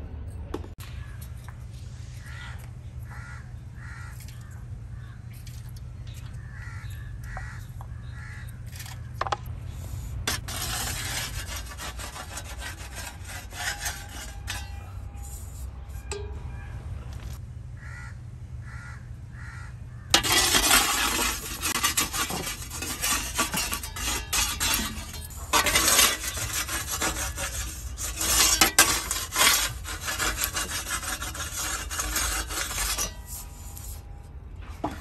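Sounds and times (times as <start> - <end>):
steady low rumble: 0.0 - 11.7, 14.8 - 20.2
crows cawing: 2.2 - 5.2, 6.3 - 8.6, 17.8 - 20.2
scraping and rustling: 5.2 - 16.4, 20.2 - 35.0.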